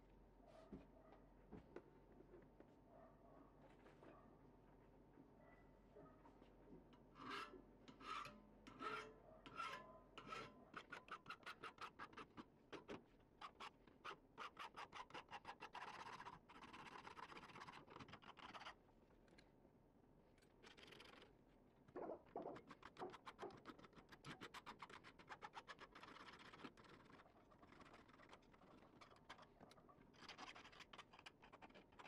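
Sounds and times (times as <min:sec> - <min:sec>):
file rasping on metal: 0:07.2 - 0:12.3.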